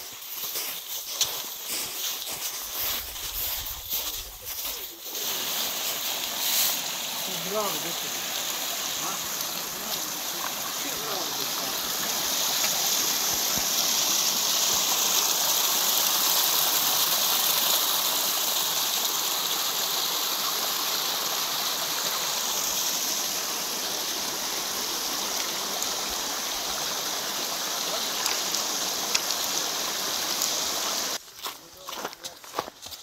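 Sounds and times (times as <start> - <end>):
footsteps on stones: 0.0 - 8.3, 11.7 - 13.7, 31.2 - 33.0
stream running over rocks: 0.0 - 33.0.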